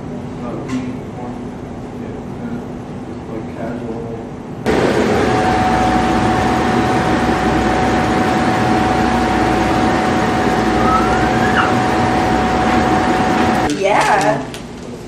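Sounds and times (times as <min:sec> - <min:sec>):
machine drone with high whine: 0:04.6 - 0:13.7
short rising squeak: 0:10.7 - 0:12.0.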